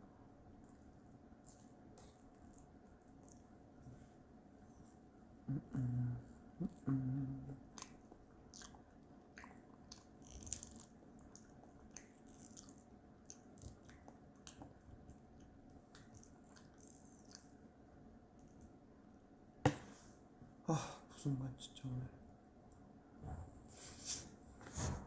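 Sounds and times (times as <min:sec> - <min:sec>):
person humming: 0:05.5 - 0:07.8
mouth clicks and crunches: 0:07.6 - 0:17.6
person chewing: 0:07.6 - 0:17.6.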